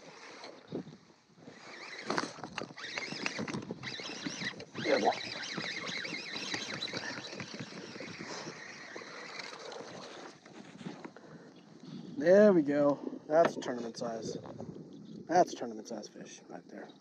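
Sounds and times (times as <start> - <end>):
fishing reel whirring: 1.4 - 10.5.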